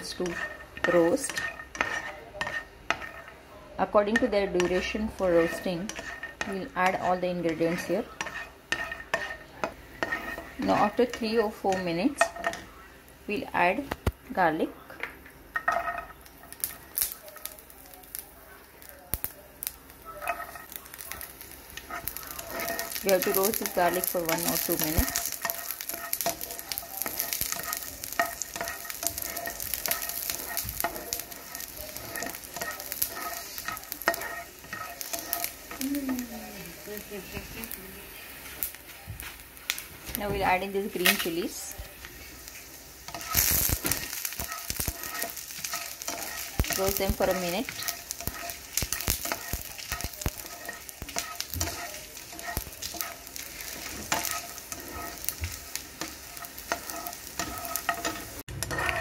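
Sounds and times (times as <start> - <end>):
spatula scraping pan: 0.0 - 12.7, 15.5 - 18.2, 19.6 - 59.0
peanuts sizzling in oil: 0.0 - 59.0
nuts clicking in pan: 15.5 - 35.8, 39.6 - 59.0.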